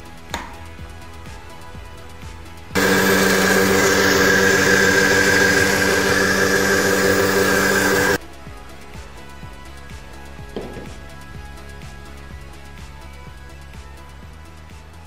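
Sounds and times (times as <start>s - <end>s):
blender motor running: 2.8s - 8.2s.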